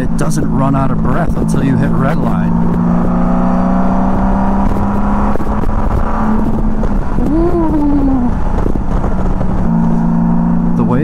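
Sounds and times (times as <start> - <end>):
motorcycle engine cruising: 0.0 - 11.0
wind rushing: 2.5 - 10.6.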